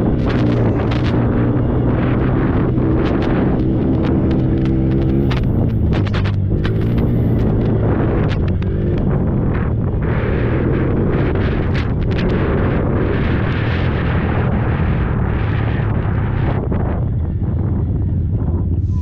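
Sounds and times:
quad engine running: 0.0s - 19.0s
wind on microphone: 0.0s - 19.0s
knocks and rattles: 3.1s - 9.1s.

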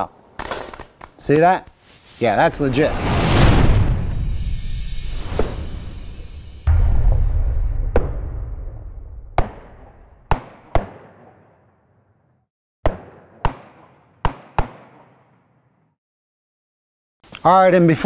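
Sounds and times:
heavy low boom: 2.6s - 10.7s
sharp booming hits: 2.6s - 11.1s.

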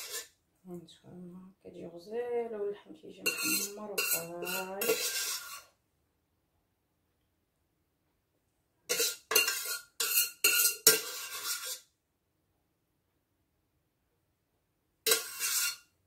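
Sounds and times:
spoon scraping cooking pot: 0.0s - 0.3s, 3.2s - 5.7s, 8.9s - 11.9s, 15.1s - 15.9s.

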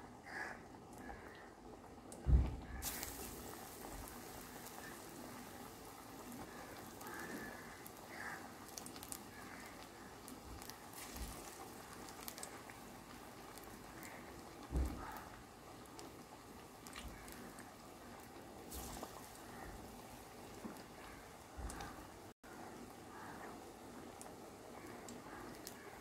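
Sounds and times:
batter deep-frying in oil: 0.0s - 26.0s
soft low thump: 2.3s - 2.7s.

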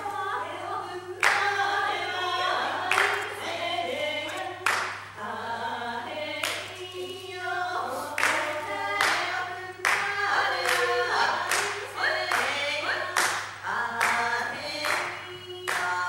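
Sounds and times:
group singing unaccompanied: 0.0s - 16.0s
hands clapping steady beat: 1.2s - 1.6s, 2.9s - 3.4s, 4.3s - 5.2s, 6.4s - 6.8s, 8.2s - 16.0s.

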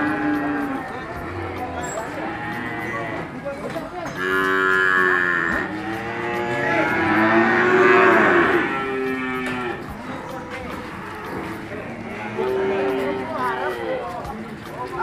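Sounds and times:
cattle mooing: 0.0s - 0.9s, 4.2s - 9.9s, 11.0s - 13.8s.

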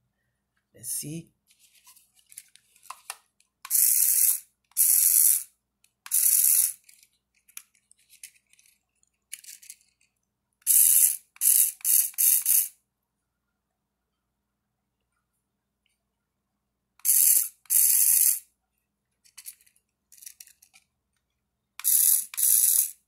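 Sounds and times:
toy car motor whirring: 3.7s - 5.5s, 6.1s - 8.7s, 9.3s - 9.9s, 10.6s - 12.8s, 17.0s - 18.5s, 19.3s - 20.8s, 21.8s - 23.0s.

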